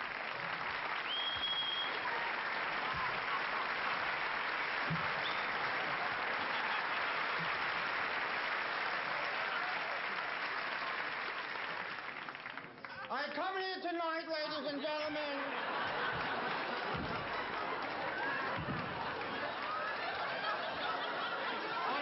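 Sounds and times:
audience applauding: 0.0s - 22.0s
short high whistle: 1.1s - 2.0s.

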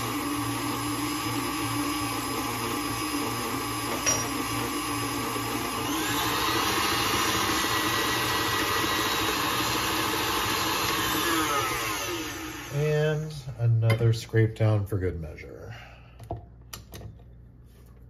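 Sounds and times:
stand mixer running: 0.0s - 13.3s.

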